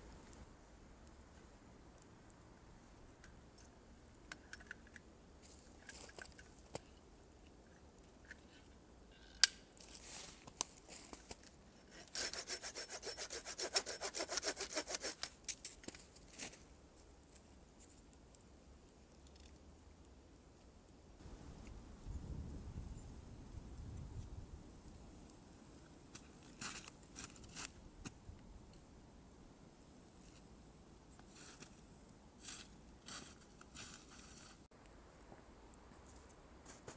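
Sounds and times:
hand saw cutting stick: 11.9 - 15.4.

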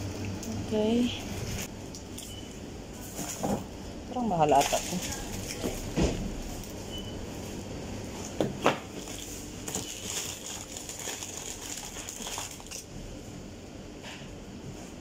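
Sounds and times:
plastic bags crinkling: 4.4 - 5.8, 8.9 - 12.9.

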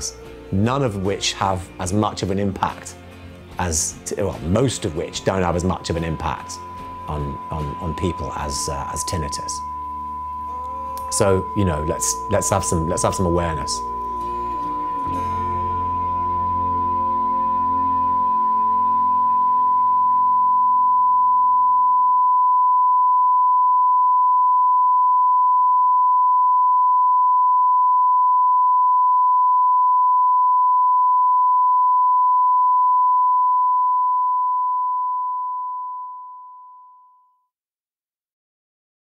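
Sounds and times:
soft ambient music: 0.0 - 20.3
high electronic pure tone: 4.7 - 37.1.

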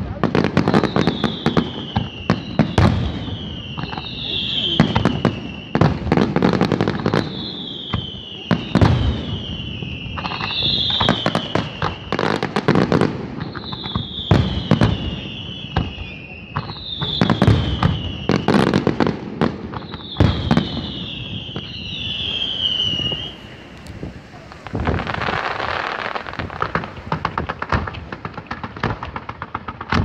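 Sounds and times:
fireworks bangs and crackles: 0.0 - 30.0
high falling whistle: 19.7 - 27.7.

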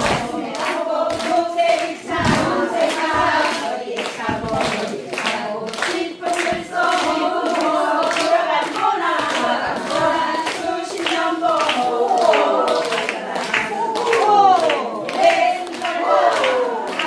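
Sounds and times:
hands clapping a beat: 0.0 - 17.0
women singing a folk song: 0.0 - 17.0.

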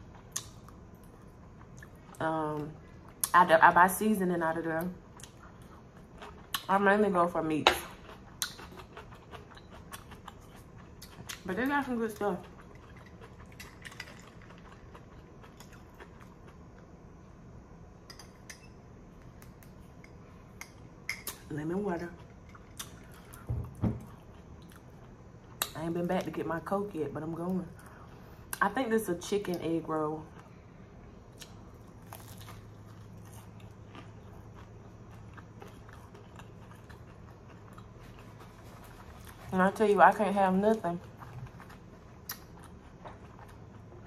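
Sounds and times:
faint low hum: 0.0 - 44.0
crispy food crunching: 7.9 - 16.9, 31.3 - 44.0.

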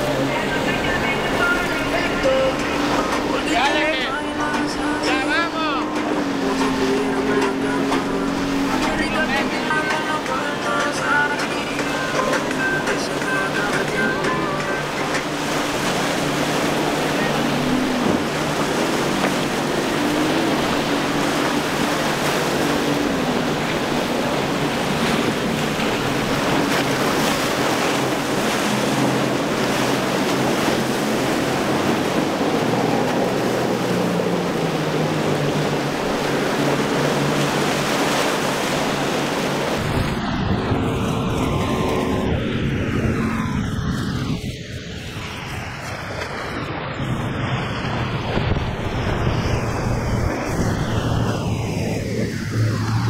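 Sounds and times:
outboard engine droning: 0.0 - 53.0
water rushing and splashing: 0.0 - 53.0
wind on microphone: 11.2 - 53.0.

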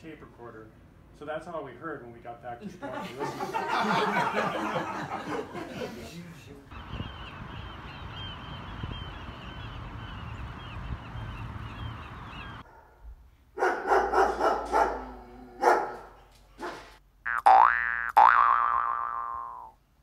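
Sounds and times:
seabirds calling: 6.7 - 12.6
wind-like hiss: 6.7 - 12.6
loud barks: 13.6 - 16.9.

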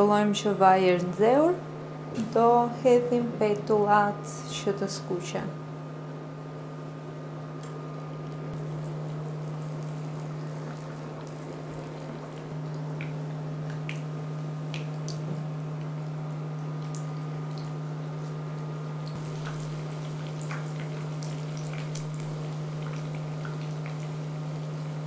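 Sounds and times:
low steady hum: 0.0 - 25.0
dough frying in oil: 8.6 - 25.0.

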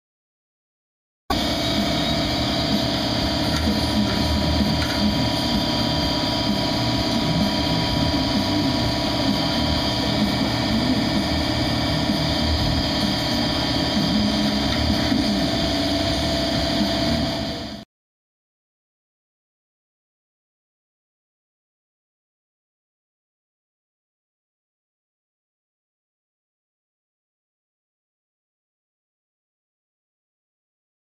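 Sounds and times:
power tool running: 1.3 - 17.8.

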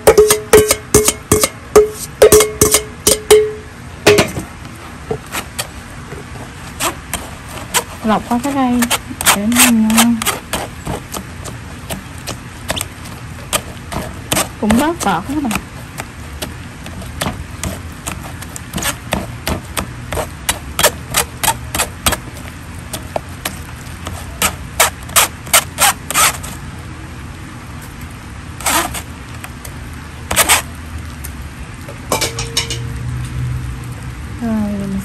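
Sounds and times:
ladle scraping metal strainer: 0.0 - 4.3
low steady hum: 0.0 - 35.0.

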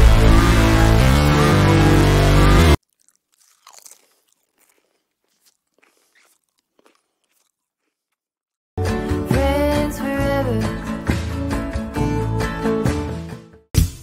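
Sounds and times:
music: 0.0 - 2.8, 8.8 - 14.0
dog crunching cabbage: 2.8 - 8.5.

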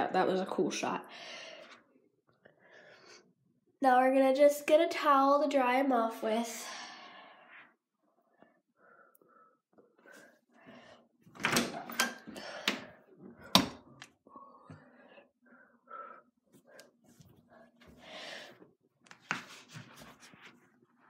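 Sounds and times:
cabinet door opening: 11.3 - 13.9.

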